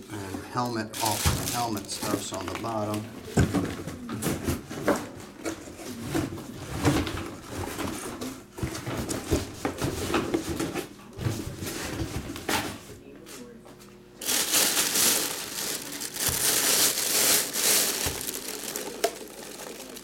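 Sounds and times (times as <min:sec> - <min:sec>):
plastic packaging crinkling: 0:00.6 - 0:03.0, 0:14.2 - 0:20.0.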